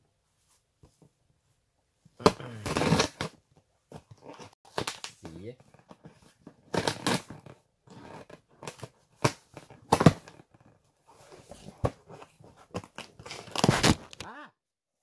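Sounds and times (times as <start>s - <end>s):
cardboard package tearing: 6.6s - 10.4s, 13.1s - 14.2s.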